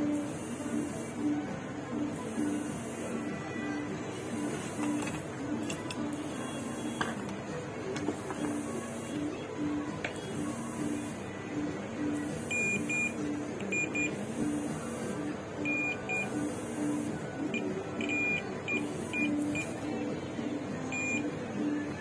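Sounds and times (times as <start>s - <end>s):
background music: 0.0s - 22.0s
multimeter short high beeps: 12.5s - 14.2s, 17.6s - 19.8s, 20.9s - 21.3s.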